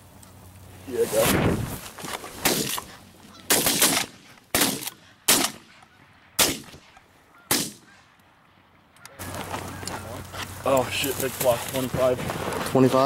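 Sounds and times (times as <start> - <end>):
shotguns firing: 2.4 - 2.9, 3.5 - 5.8, 6.4 - 8.0.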